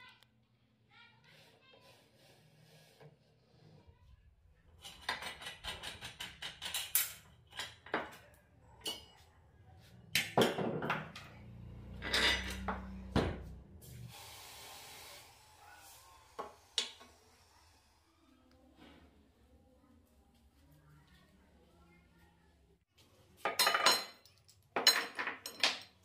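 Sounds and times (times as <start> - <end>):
steady hiss: 14.0 - 18.0.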